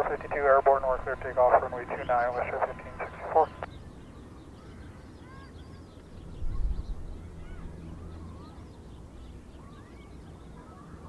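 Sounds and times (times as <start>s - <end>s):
steady low rumble: 0.0s - 3.7s
distant flock of birds calling: 0.0s - 11.0s.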